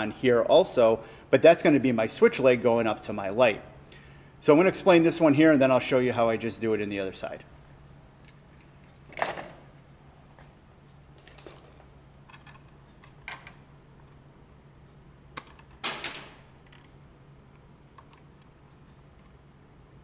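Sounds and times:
faint low hum: 0:00.0 - 0:20.0
pliers clicking on wire: 0:15.4 - 0:15.8.

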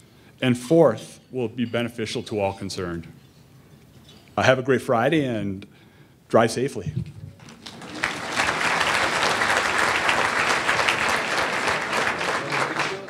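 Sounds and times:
audience applauding: 0:07.4 - 0:13.0.

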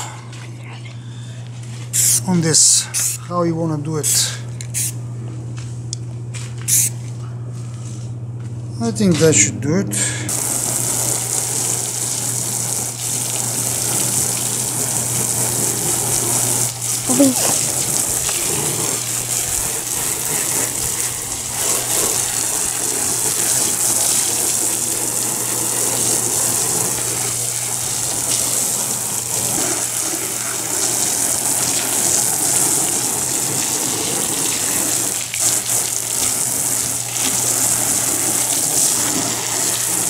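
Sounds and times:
hose spraying water: 0:01.9 - 0:03.2, 0:06.7 - 0:06.9, 0:10.3 - 0:40.0
water splashing on ground: 0:10.3 - 0:40.0.

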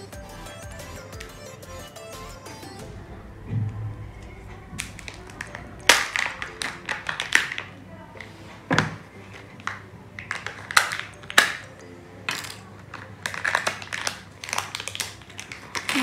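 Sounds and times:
plastic pieces clicking and crinkling: 0:04.8 - 0:07.8, 0:08.8 - 0:11.7, 0:12.3 - 0:16.0.

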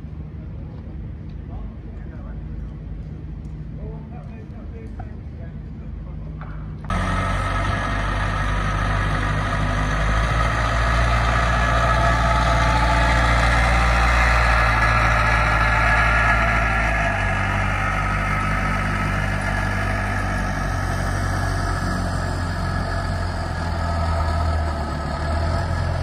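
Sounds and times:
aircraft tug engine running: 0:00.0 - 0:26.0.

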